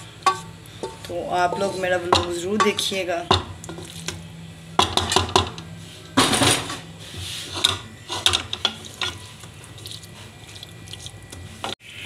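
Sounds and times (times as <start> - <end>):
wooden spatula scraping a pot: 0.3 - 2.8, 7.0 - 10.3.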